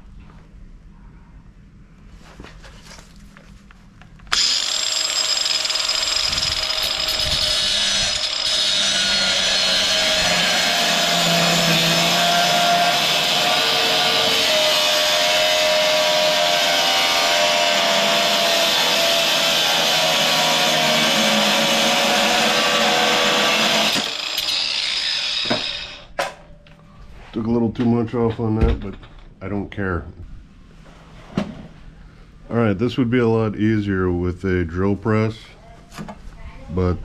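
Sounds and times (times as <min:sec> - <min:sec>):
angle grinder cutting steel: 0:04.3 - 0:26.1.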